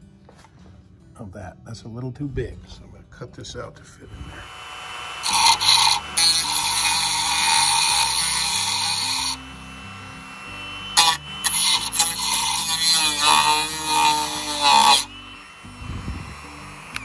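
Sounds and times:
background music: 0.0s - 4.6s, 5.2s - 17.0s
rotary tool cutting plastic: 5.2s - 9.4s, 10.8s - 17.0s.

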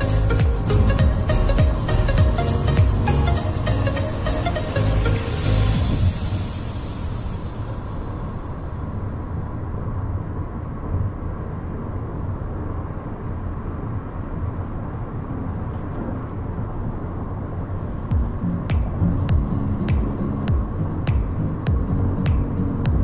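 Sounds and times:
music: 0.0s - 9.4s, 18.1s - 23.0s
car road and engine noise: 0.0s - 23.0s.

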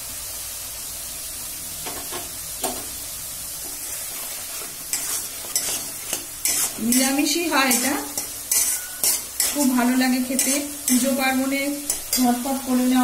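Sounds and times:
spice paste sizzling in oil: 0.0s - 13.0s
metal spatula scraping pan: 3.6s - 12.7s.

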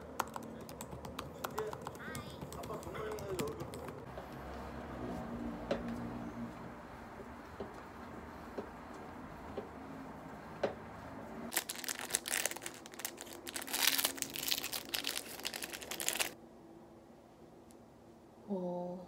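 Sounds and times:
pill packet crinkling: 11.5s - 16.4s.

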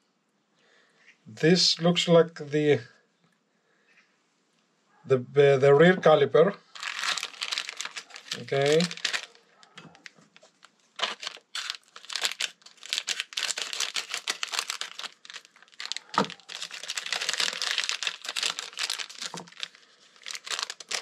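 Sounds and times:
plastic packaging crinkling: 6.7s - 21.0s.

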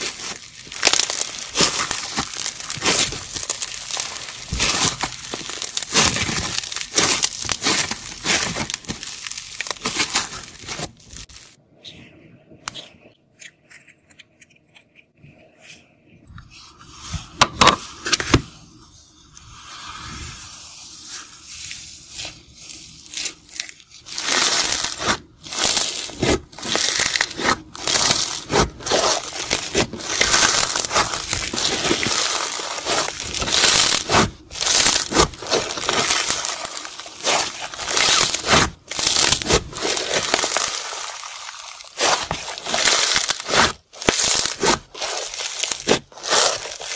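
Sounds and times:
foam beads crackling in slime: 0.0s - 11.6s, 21.0s - 46.9s.

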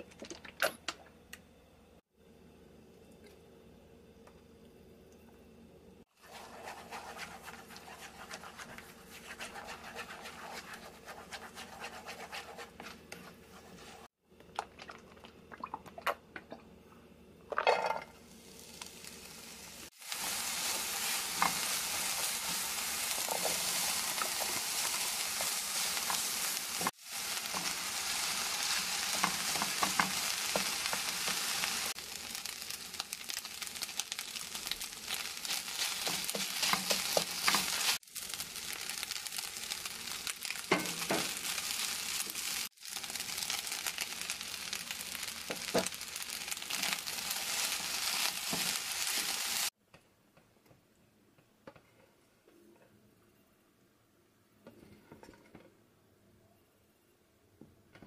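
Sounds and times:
food sizzling in frying pan: 6.0s - 14.2s, 18.1s - 49.8s
spatula scraping and tapping pan: 6.2s - 14.1s, 23.2s - 27.8s, 29.0s - 31.5s, 35.8s - 38.0s, 40.7s - 41.4s.

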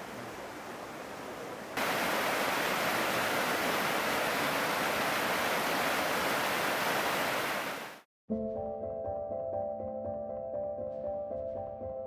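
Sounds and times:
mountain stream rushing: 0.0s - 8.0s.

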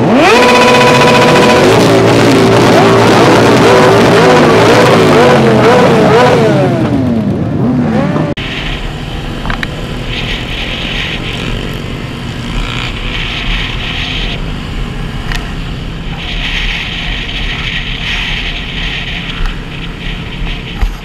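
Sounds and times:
motorcycle engines droning: 0.0s - 21.0s
rushing wind hiss: 8.4s - 21.0s.

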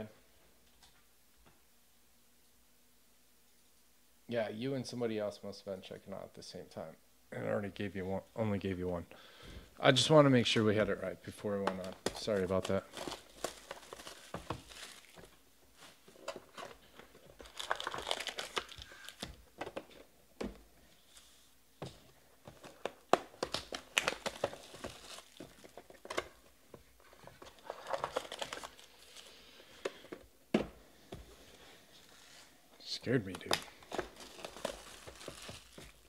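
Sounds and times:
card packs crinkling: 11.0s - 20.1s, 21.9s - 30.3s, 31.4s - 36.0s.

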